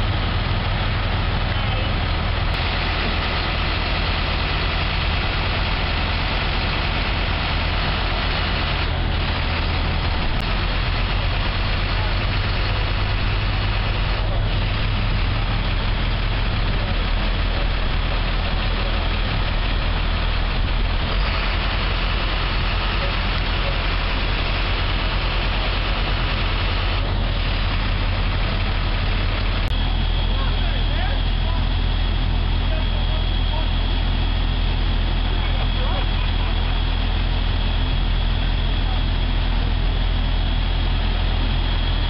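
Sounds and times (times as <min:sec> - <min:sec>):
truck engine idling: 0:00.0 - 0:42.0.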